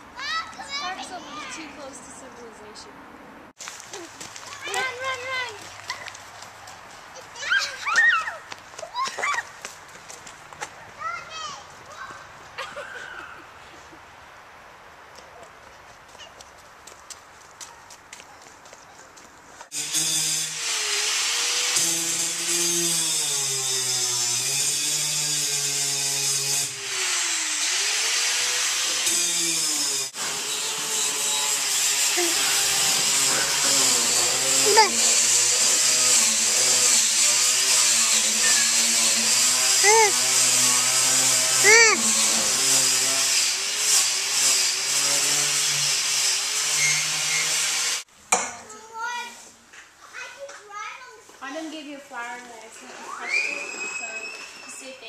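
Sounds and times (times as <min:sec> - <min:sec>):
power grinder grinding metal: 0:19.7 - 0:48.1.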